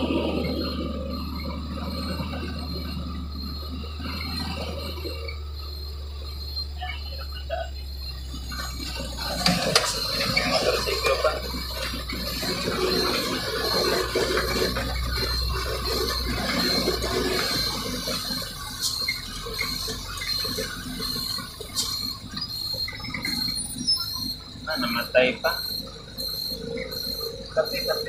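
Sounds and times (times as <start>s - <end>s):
road noise rushing: 0.0s - 28.0s
truck engine humming: 0.0s - 28.0s.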